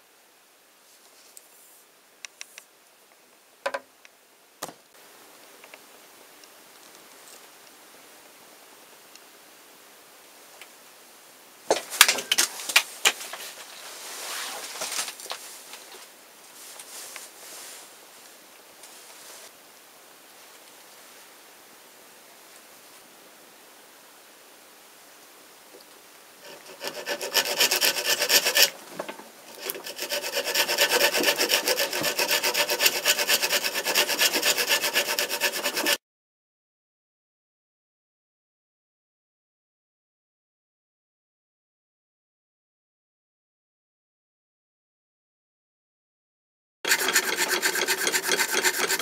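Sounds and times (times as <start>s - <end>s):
knife sawing a branch: 26.4s - 28.7s, 29.5s - 36.0s, 46.9s - 49.0s.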